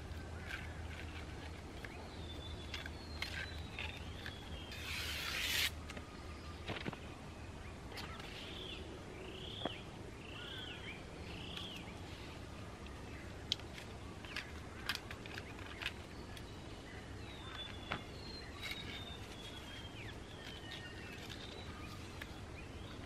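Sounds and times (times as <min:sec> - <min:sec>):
bird calling short arching notes: 0:04.7 - 0:05.8.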